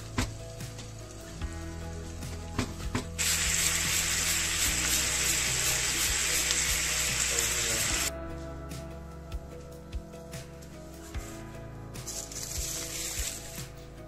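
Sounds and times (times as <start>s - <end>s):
background music: 0.0s - 14.0s
meat sizzling in a frying pan: 0.1s - 8.1s, 12.2s - 13.6s.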